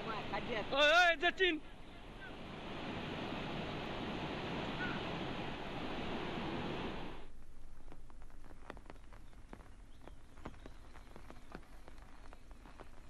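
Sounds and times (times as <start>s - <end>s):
faint steady hiss: 0.0s - 13.0s.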